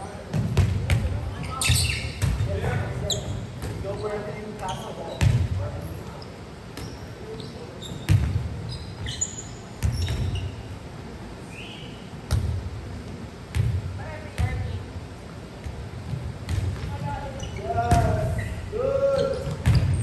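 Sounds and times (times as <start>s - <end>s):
short high squeaks: 6.1s - 8.1s, 8.7s - 10.7s, 18.3s - 20.0s
volleyball thuds echoing: 15.6s - 17.2s.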